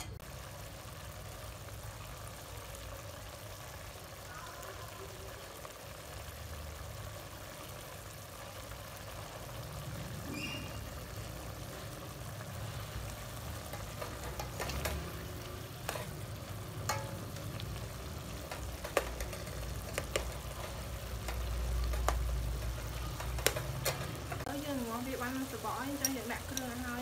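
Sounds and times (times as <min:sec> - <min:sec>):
meat sizzling in a pot: 0:00.0 - 0:27.0
metal ladle scraping pot: 0:13.6 - 0:24.5.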